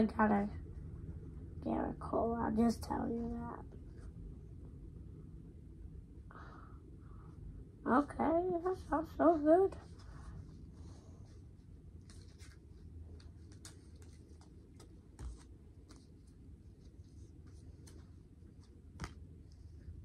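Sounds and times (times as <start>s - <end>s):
cards rustling and clicking: 12.0s - 19.3s.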